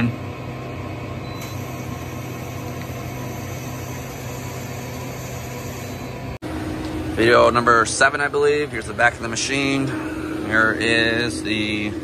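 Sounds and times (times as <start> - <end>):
lathe spindle humming: 1.5 - 7.6.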